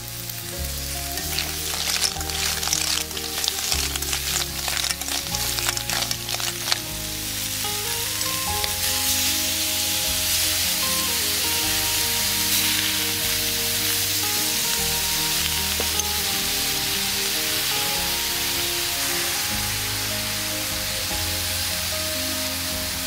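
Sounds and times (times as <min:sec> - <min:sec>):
background music: 0:00.0 - 0:23.0
frying sizzle: 0:00.0 - 0:23.0
snail shells clattering in a wok: 0:01.0 - 0:09.2, 0:12.2 - 0:18.0.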